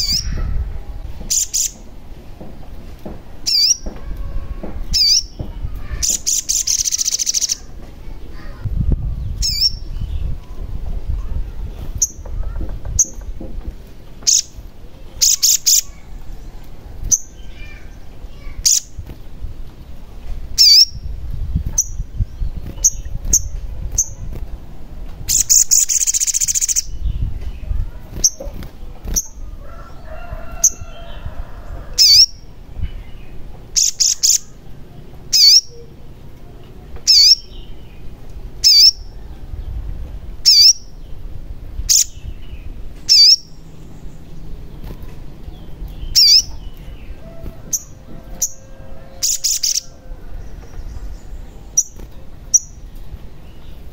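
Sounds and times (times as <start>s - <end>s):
noisy rustle: 0.0s - 35.3s, 35.9s - 53.9s
bird chirping: 1.2s - 1.9s, 4.6s - 7.7s, 12.0s - 19.0s, 20.6s - 24.4s, 25.3s - 31.2s, 32.0s - 36.0s, 37.0s - 39.8s, 40.4s - 53.9s.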